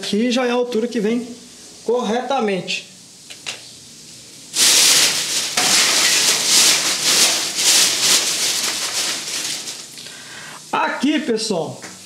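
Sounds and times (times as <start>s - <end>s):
rhythmic scraping strokes: 4.6s - 9.9s.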